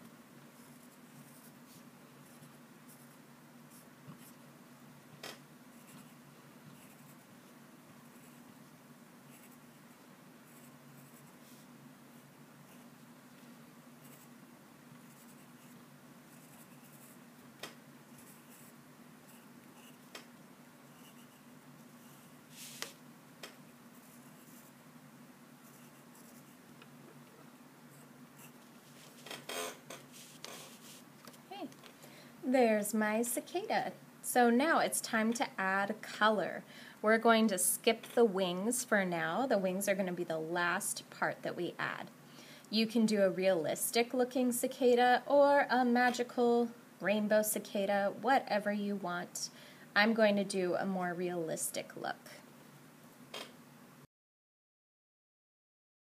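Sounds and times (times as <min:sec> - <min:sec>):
faint low hum: 0:00.0 - 0:54.1
pencil scratching on paper: 0:00.6 - 0:04.4, 0:05.7 - 0:07.3, 0:08.0 - 0:08.6, 0:09.3 - 0:12.9, 0:14.0 - 0:14.3, 0:15.0 - 0:17.2, 0:18.1 - 0:20.1, 0:20.9 - 0:22.9, 0:23.9 - 0:24.8, 0:25.6 - 0:26.6, 0:27.9 - 0:28.6.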